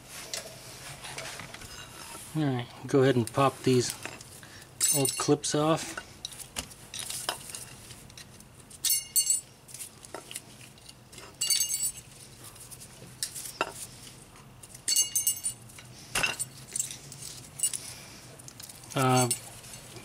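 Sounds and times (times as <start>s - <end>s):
metal clips clinking: 4.8s - 5.4s, 18.5s - 19.9s.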